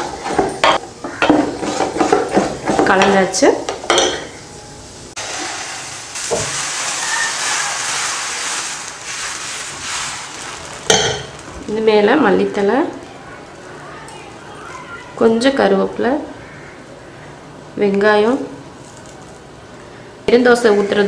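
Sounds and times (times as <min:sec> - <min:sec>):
batter sizzling on hot pan: 0:00.1 - 0:11.7
ladle scraping steel pot: 0:01.2 - 0:02.8.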